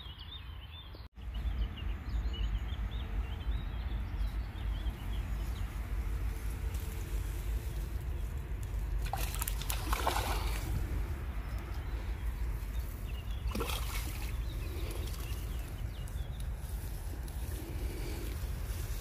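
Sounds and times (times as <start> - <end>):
low steady rumble: 1.2 - 19.0
water splashing among reeds: 5.1 - 19.0.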